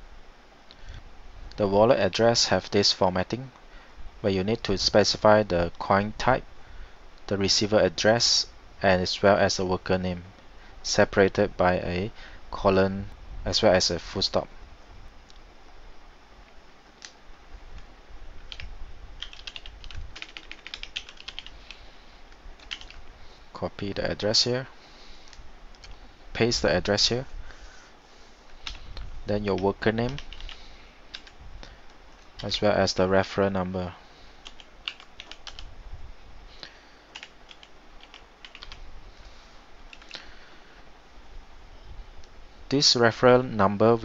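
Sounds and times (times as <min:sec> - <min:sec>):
keyboard typing: 0:18.5 - 0:21.8, 0:22.6 - 0:23.1, 0:28.6 - 0:28.9, 0:29.5 - 0:31.4, 0:34.4 - 0:35.7, 0:37.1 - 0:38.8, 0:39.9 - 0:40.2.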